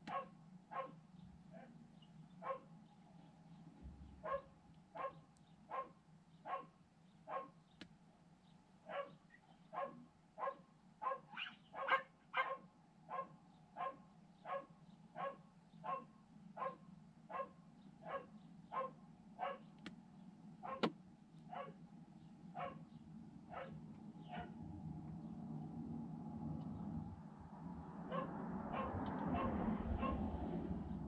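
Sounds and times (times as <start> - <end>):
dog barking: 0.0 - 1.8, 2.4 - 2.7, 4.2 - 7.6, 8.9 - 19.7, 20.6 - 20.9, 21.5 - 21.8, 22.6 - 22.9, 23.5 - 24.6, 28.1 - 30.3.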